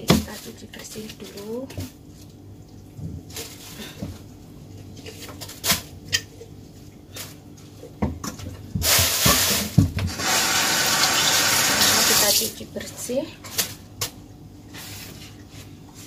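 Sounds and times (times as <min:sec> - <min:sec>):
tap water running: 0:10.0 - 0:12.6.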